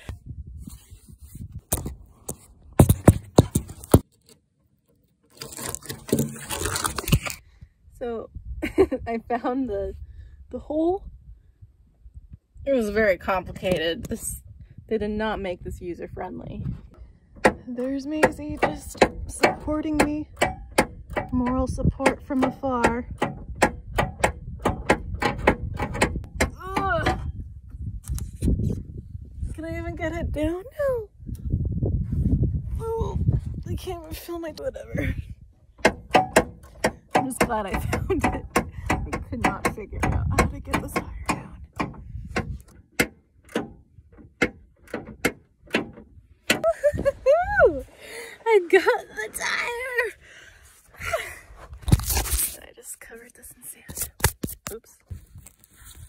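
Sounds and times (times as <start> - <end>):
rustling scrape: 0.0 - 4.4, 5.3 - 7.4, 50.6 - 52.7, 53.9 - 56.0.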